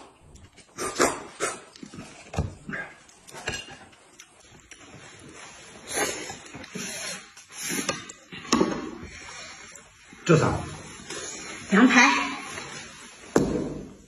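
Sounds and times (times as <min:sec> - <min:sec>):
man slurping and smacking: 0:00.0 - 0:08.9.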